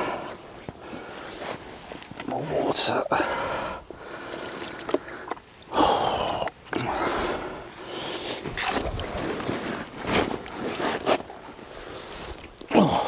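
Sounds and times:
water sloshing and splashing: 3.9s - 13.0s
fish slapping: 4.2s - 5.4s, 8.4s - 12.8s.

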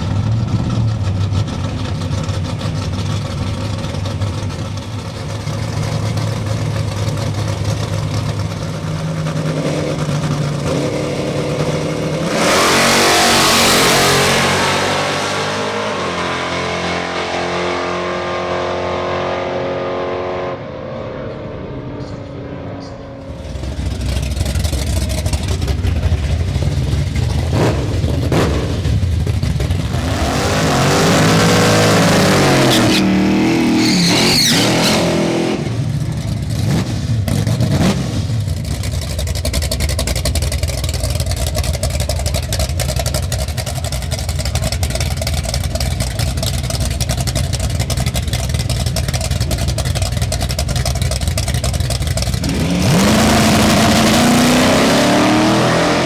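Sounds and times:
car engines idling: 0.0s - 12.3s, 21.4s - 32.7s, 35.6s - 54.6s
race car engines revving: 0.0s - 56.0s.

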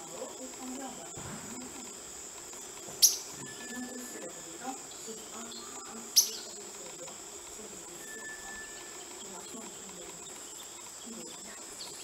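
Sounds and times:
insects trilling: 0.0s - 12.0s
thin whistle: 8.0s - 9.0s.

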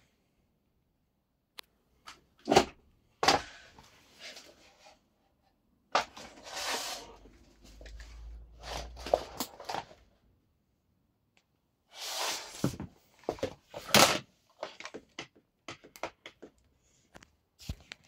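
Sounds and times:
plastic and metal knocks and clicks: 14.7s - 16.6s.

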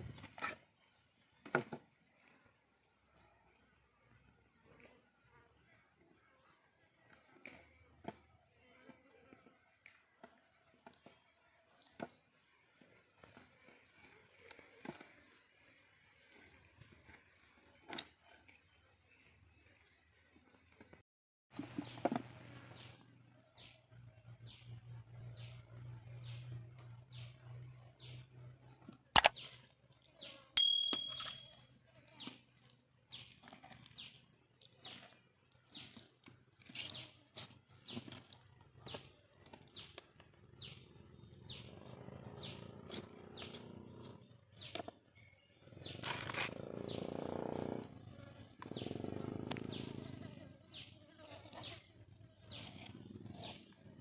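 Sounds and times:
metal ding on tray: 30.6s - 31.6s
short high chirps: 30.6s - 31.6s.

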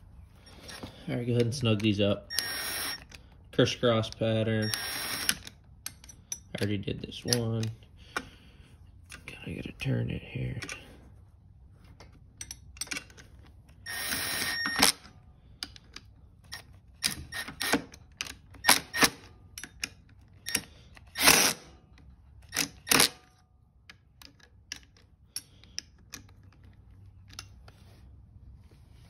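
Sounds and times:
power driver whining: 0.4s - 5.9s, 13.8s - 15.1s.

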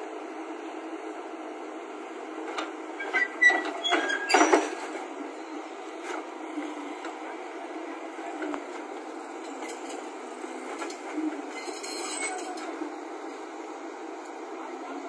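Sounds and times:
excavator engine running: 0.1s - 15.0s
metal tracks clanking and squealing: 3.0s - 5.1s, 11.5s - 12.7s.

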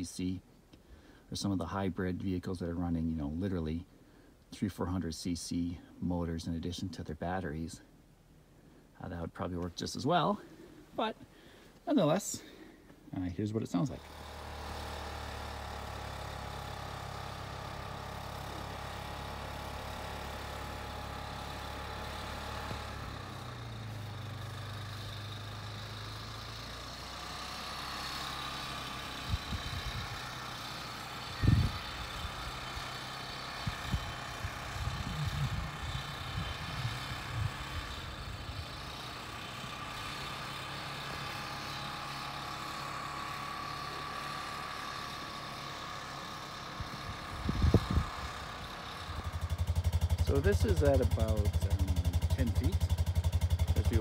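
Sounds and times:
muffled atv engine under load: 12.4s - 54.0s.

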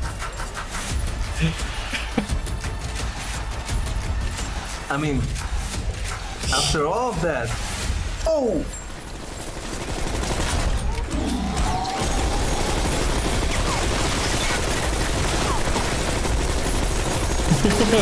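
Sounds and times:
machine gun firing: 8.8s - 18.0s.

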